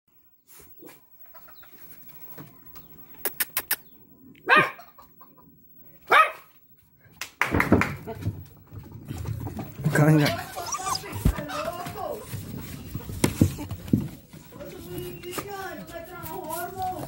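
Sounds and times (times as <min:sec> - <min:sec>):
sharp clicks: 0:03.2 - 0:03.8
dog barking: 0:04.4 - 0:04.9, 0:06.1 - 0:06.5.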